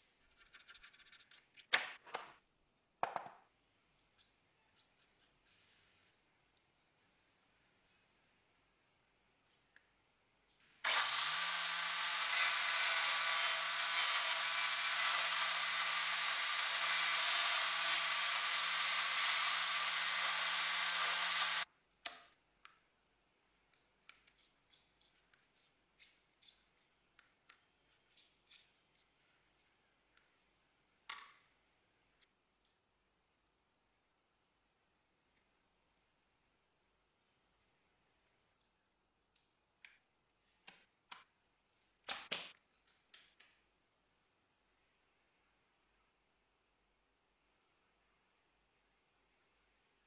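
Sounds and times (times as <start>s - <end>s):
power tool cutting plastic: 10.8s - 21.7s.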